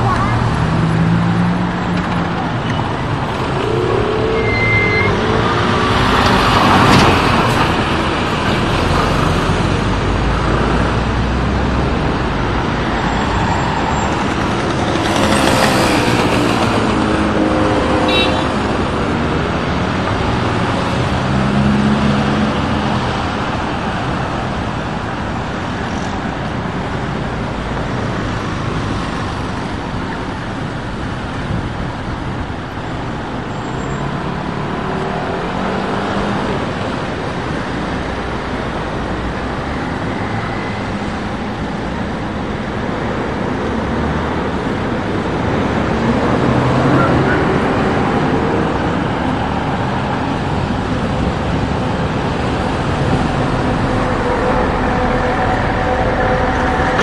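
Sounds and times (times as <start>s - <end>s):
loud rushes of noise: 0.0s - 57.0s
bus engine running: 47.2s - 57.0s.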